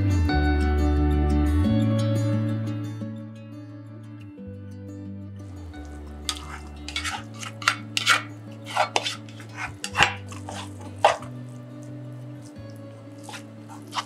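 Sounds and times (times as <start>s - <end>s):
paddle scraping and knocking pot: 5.6s - 14.0s.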